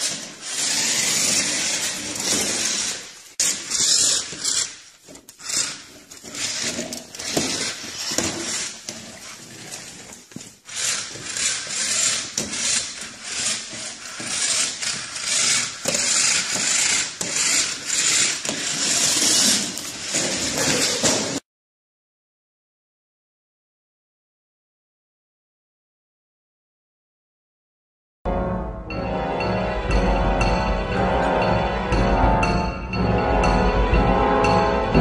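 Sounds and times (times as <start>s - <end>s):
toy car motor whirring: 0.0s - 21.2s
toy car wheels clattering: 0.0s - 21.4s.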